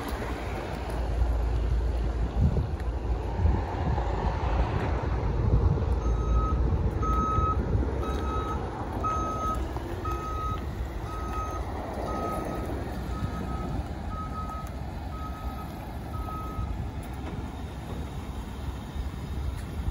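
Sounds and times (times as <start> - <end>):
low vehicle rumble: 0.0 - 19.9
wind noise: 0.0 - 19.9
reversing alarm beeping: 6.0 - 16.8.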